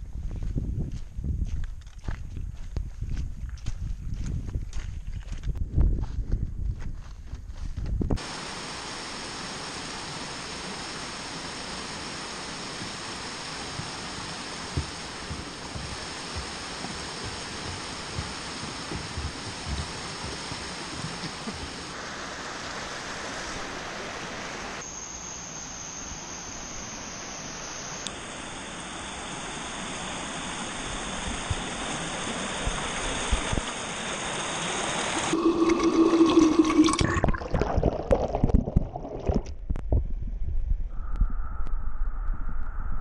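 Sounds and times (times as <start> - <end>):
running water rushing: 8.2 - 24.8, 28.8 - 39.6
underwater bubbling and gurgling: 35.2 - 40.1.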